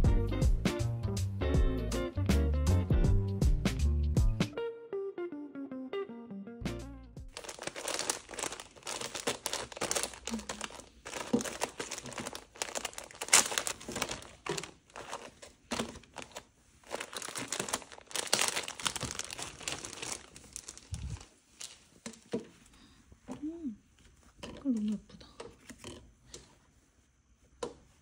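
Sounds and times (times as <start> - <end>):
plastic packaging crinkling: 7.3 - 22.3.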